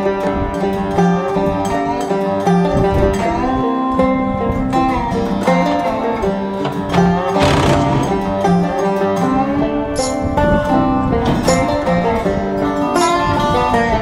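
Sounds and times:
bluegrass plucked string music: 4.8s - 9.8s.

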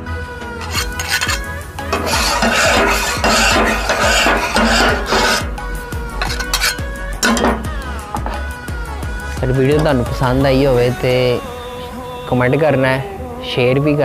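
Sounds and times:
steel scraper rasping on iron griddle: 0.6s - 10.4s.

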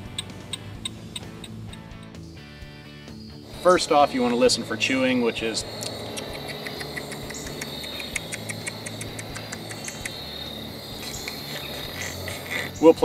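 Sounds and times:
high drone of insects: 0.0s - 13.0s
squirrel gnawing on a nut: 5.7s - 10.3s.

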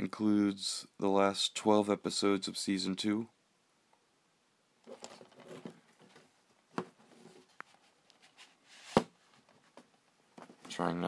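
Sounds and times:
plastic case rustling: 4.8s - 10.8s.

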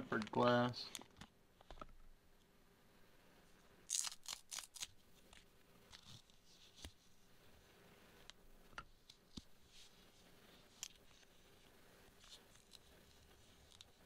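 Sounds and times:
packaging crinkling: 3.9s - 5.0s.

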